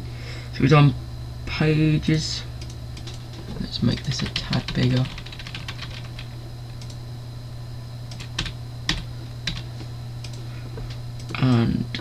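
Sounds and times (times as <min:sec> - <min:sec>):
steady low hum: 0:00.0 - 0:12.0
keyboard keys tapping: 0:04.0 - 0:07.0.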